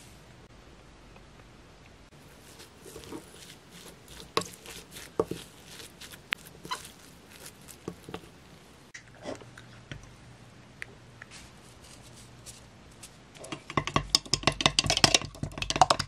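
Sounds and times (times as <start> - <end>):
egg cracking: 2.1 - 9.0, 13.4 - 16.0
soft squishing: 2.1 - 10.2.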